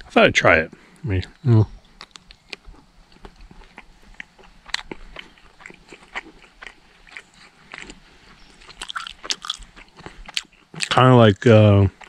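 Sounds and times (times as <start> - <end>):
person chewing a meat stick: 1.8 - 11.0.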